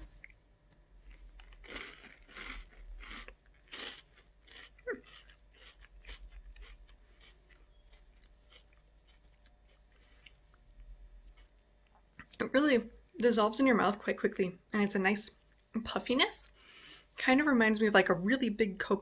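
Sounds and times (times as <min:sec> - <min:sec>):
crunchy snack chewing: 0:01.0 - 0:12.4.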